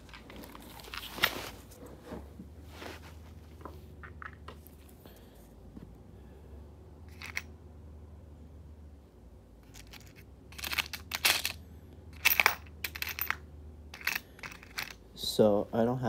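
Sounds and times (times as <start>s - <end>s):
steady low hum: 0.0s - 16.0s
small hardware clicking and rattling: 9.6s - 11.6s, 12.2s - 15.0s.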